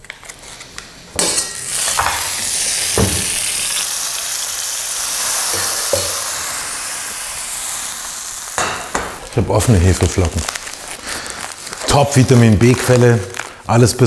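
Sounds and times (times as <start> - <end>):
frying pan sizzling: 1.2 - 14.0
metal pan and ladle knocking: 5.6 - 6.2.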